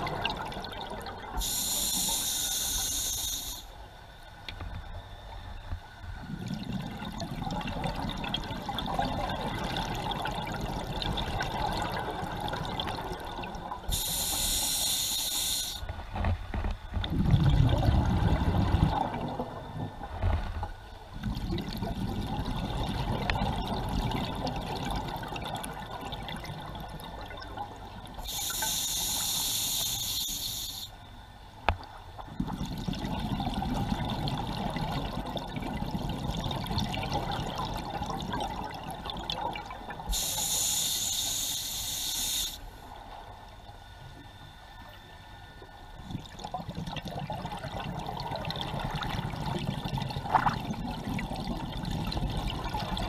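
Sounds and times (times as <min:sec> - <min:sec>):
exhaled air bubbling: 0:00.0 - 0:03.7, 0:06.1 - 0:15.9, 0:16.9 - 0:31.3, 0:32.0 - 0:42.6, 0:45.4 - 0:53.0
regulator inhalation hiss: 0:01.4 - 0:03.8, 0:13.9 - 0:15.9, 0:28.2 - 0:31.0, 0:40.1 - 0:42.8.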